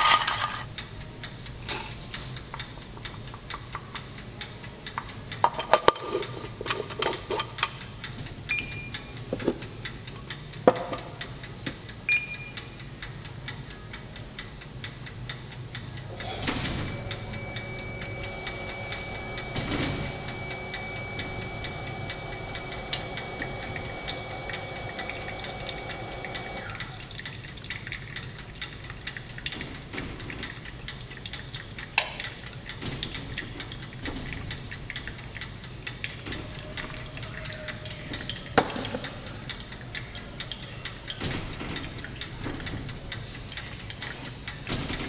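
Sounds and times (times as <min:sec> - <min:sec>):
steady tone: 0:16.3 - 0:27.0.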